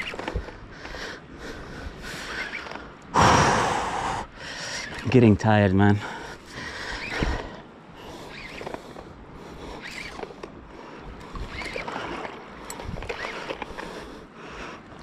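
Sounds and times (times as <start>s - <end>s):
person breathing heavily: 3.1s - 4.9s, 6.0s - 9.8s
shallow water sloshing and splashing: 6.3s - 15.0s.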